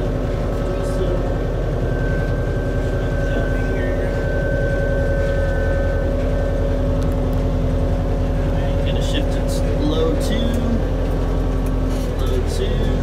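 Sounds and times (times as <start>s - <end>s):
thin high whine: 0.0s - 10.9s
tractor diesel engine running: 0.0s - 13.0s.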